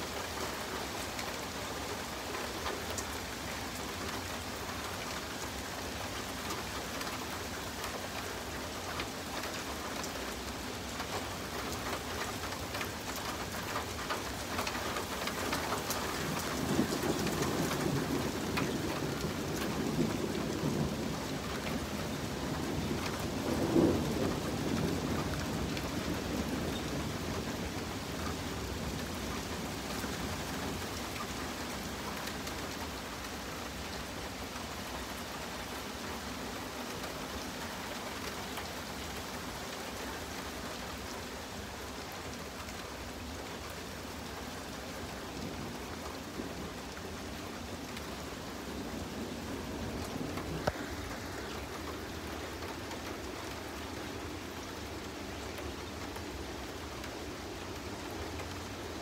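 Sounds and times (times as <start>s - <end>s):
rain on pavement: 0.0s - 59.0s
rolling thunder: 16.3s - 27.9s.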